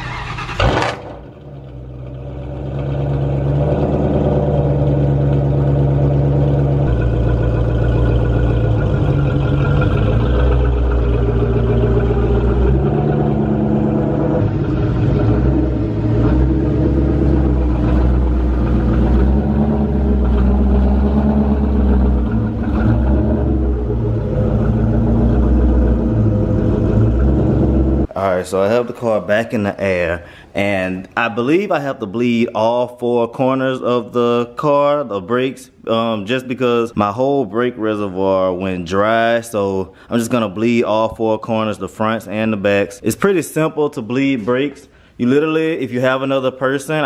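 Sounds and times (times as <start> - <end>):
car engine exhaust rumble: 0.0 - 28.1.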